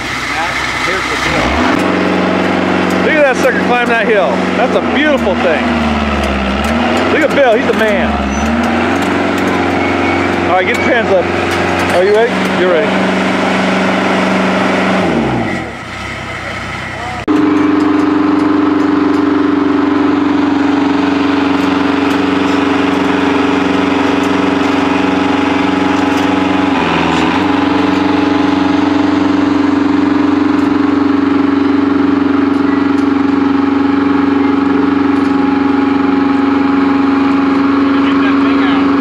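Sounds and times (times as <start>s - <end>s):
heavy equipment engine humming: 0.0s - 39.0s.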